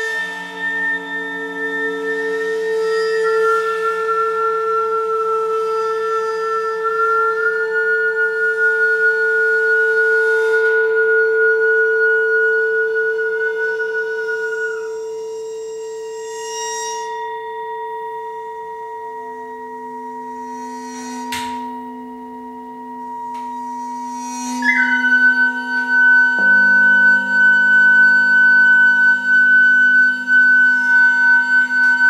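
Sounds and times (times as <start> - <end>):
singing bowls and gongs ringing: 0.0 - 32.0
flute holding a high note: 23.4 - 32.0.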